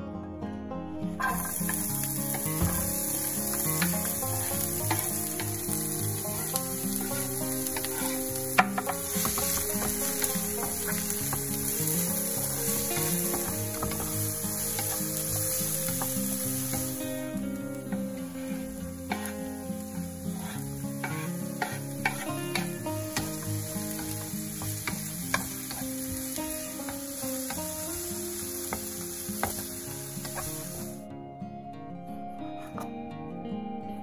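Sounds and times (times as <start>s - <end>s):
onion sizzling in oil: 1.2s - 31.1s
spatula clicks in pan: 22.0s - 23.4s.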